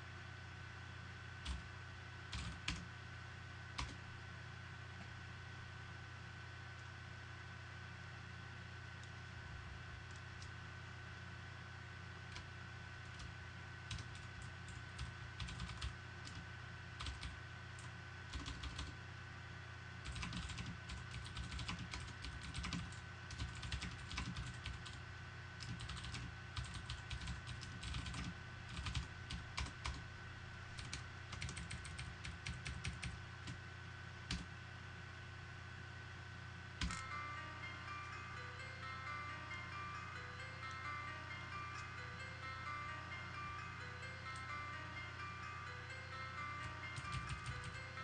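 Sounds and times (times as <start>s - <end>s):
steady low hum: 0.0s - 48.0s
keyboard typing clicks: 1.4s - 1.6s, 13.9s - 16.4s, 17.0s - 18.9s, 20.0s - 25.0s, 25.6s - 30.0s, 30.8s - 33.6s, 36.8s - 37.1s, 46.6s - 47.8s
faint high steady tone: 36.1s - 48.0s.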